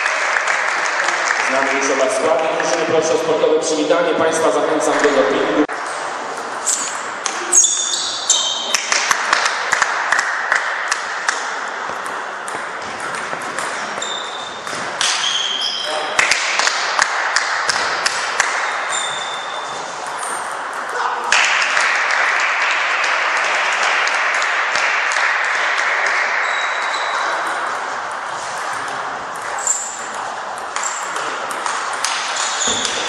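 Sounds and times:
table tennis balls clicking: 0:08.3 - 0:15.6, 0:16.2 - 0:33.0.

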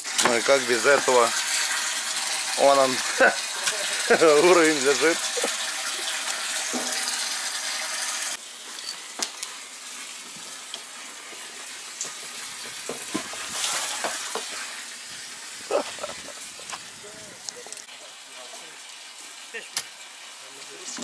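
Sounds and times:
water gushing: 0:00.0 - 0:21.0
water hiss: 0:00.0 - 0:21.0.

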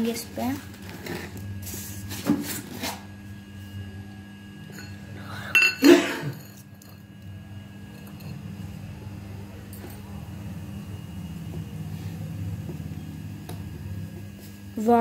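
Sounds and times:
metal bowl clinking on tiled floor: 0:04.7 - 0:07.1, 0:07.9 - 0:08.4.

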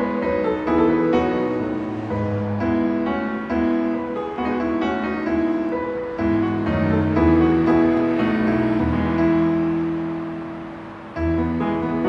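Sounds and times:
gentle piano melody: 0:00.0 - 0:12.0.

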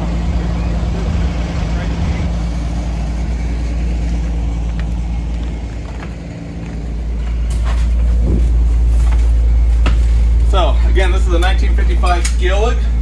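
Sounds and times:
bus engine idling: 0:00.0 - 0:13.0.

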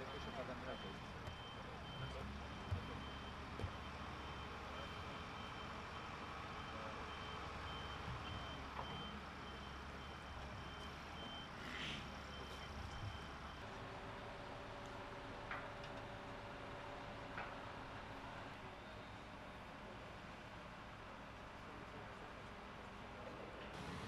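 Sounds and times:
reversing alarm beeping: 0:00.0 - 0:13.8
engine rumble: 0:23.2 - 0:24.0.

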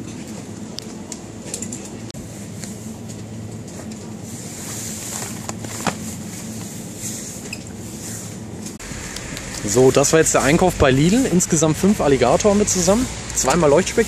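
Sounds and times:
electrical hum: 0:00.0 - 0:14.0
background noise haze: 0:04.2 - 0:14.0.

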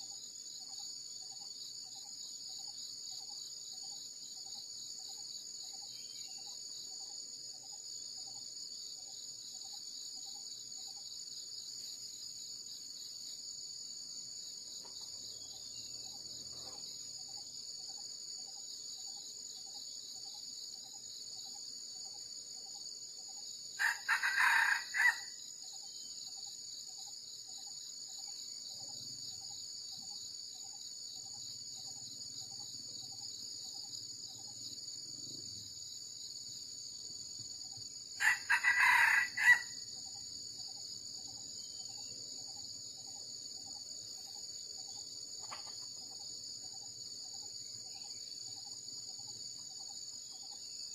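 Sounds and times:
insects droning: 0:00.0 - 0:50.9
rooster crowing: 0:23.8 - 0:25.4, 0:38.2 - 0:39.8.

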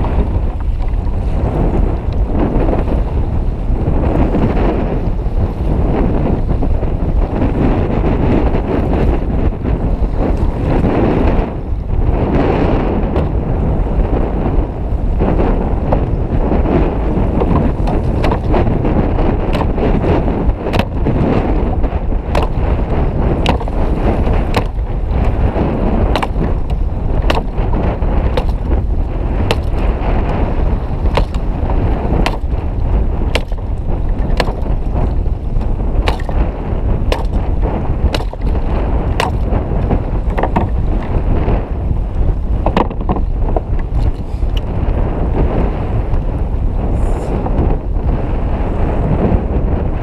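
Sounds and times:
choppy sea: 0:00.0 - 0:50.0
wind buffeting microphone: 0:00.0 - 0:50.0
knocks against kayak: 0:17.4 - 0:18.7, 0:19.5 - 0:21.2, 0:22.3 - 0:25.4, 0:26.1 - 0:28.8, 0:29.4 - 0:30.4, 0:31.0 - 0:31.5, 0:32.2 - 0:32.6, 0:33.3 - 0:36.4, 0:37.1 - 0:37.4, 0:38.0 - 0:41.2, 0:42.6 - 0:44.7.

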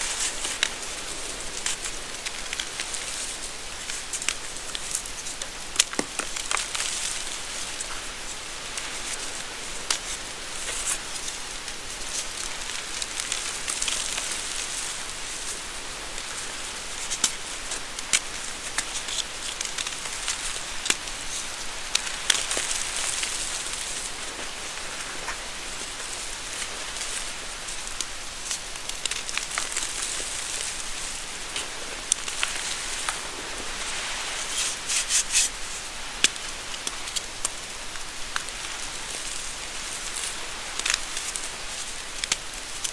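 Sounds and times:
chalk crackling: 0:33.9 - 0:35.8.

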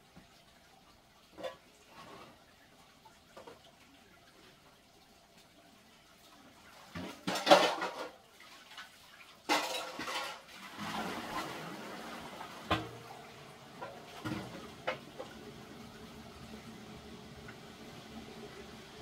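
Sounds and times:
containers and utensils clattering: 0:01.3 - 0:02.5, 0:06.8 - 0:15.5.

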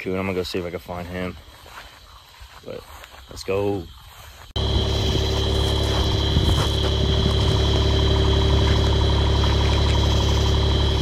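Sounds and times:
high-pitched whine: 0:04.6 - 0:11.0
vehicle engine idling: 0:04.6 - 0:11.0.

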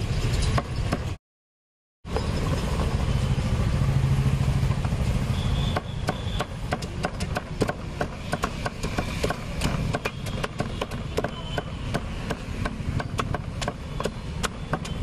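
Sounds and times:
knife chopping on wooden block: 0:05.8 - 0:15.0.

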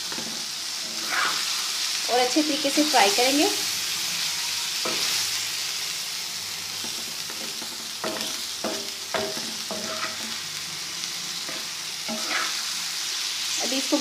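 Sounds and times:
masala sizzling in oil: 0:00.0 - 0:14.0
utensil scraping against pan: 0:00.1 - 0:01.6, 0:07.3 - 0:10.4, 0:11.5 - 0:12.7.

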